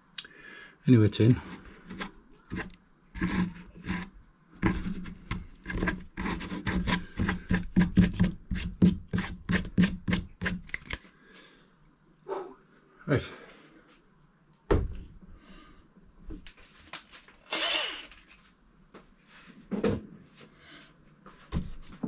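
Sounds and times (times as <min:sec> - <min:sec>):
hand brushing plastic surface: 0:01.4 - 0:10.6.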